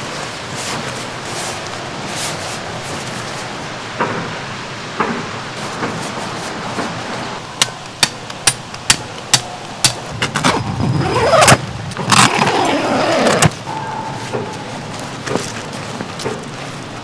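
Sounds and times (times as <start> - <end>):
tent zipper pulled: 10.3 - 13.6.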